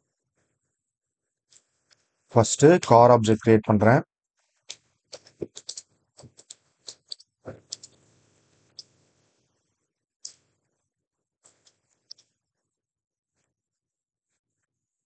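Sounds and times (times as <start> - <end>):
typing on a keyboard: 5.1 - 8.0.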